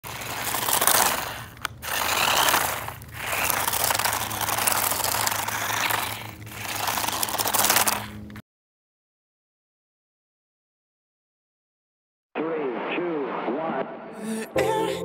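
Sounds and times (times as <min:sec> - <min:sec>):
remote-control car motor whir: 0:00.0 - 0:08.4
wheels rushing on concrete: 0:00.0 - 0:08.4.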